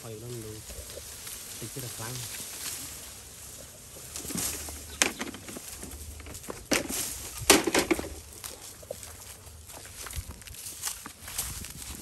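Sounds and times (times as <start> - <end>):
dry bamboo rustling and crackling: 0.0 - 12.0.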